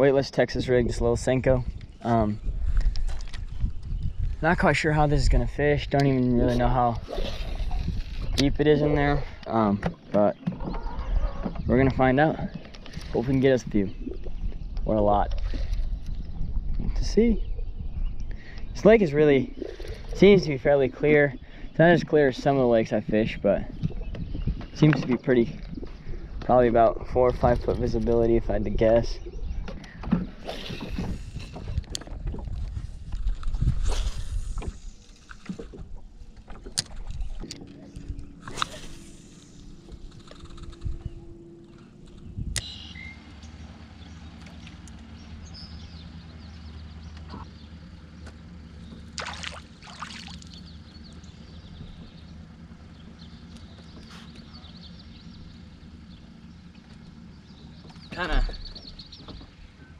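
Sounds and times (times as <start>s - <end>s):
wind buffeting microphone: 0.0s - 44.2s
low hum: 0.0s - 59.9s
brief whooshes: 38.4s - 41.2s
water splashing rush: 49.1s - 50.6s.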